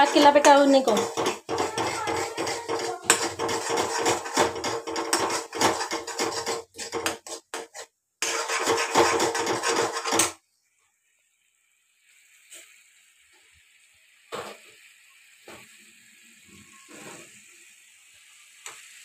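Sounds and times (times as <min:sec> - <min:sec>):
spatula scraping a pan: 0:00.0 - 0:10.4, 0:16.6 - 0:17.4.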